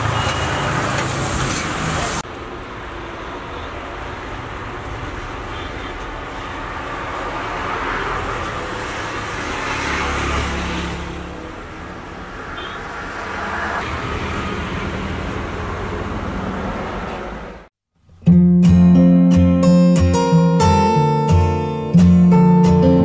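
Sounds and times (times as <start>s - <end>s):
passing cars rushing: 6.1s - 17.7s.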